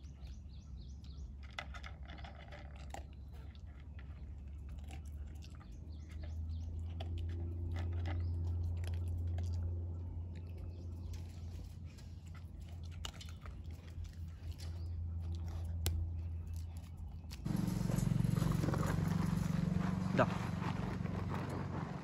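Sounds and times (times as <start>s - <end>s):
dog eating from plastic bowl: 0.9s - 15.5s
low rumble: 17.5s - 22.0s.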